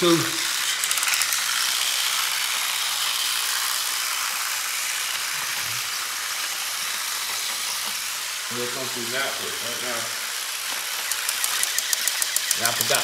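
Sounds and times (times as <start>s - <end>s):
toy train motors whirring: 0.0s - 13.0s
quick clicks: 11.0s - 12.8s.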